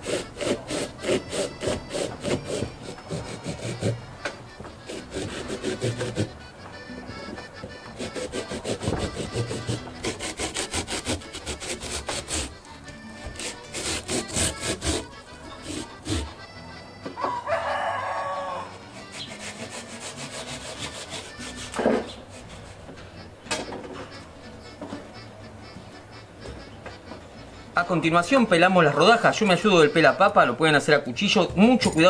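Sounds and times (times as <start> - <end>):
hand saw cutting through squash: 0.0 - 4.0, 4.8 - 6.4, 7.9 - 12.6, 13.2 - 16.5, 18.7 - 22.8
rooster crowing: 17.2 - 19.0.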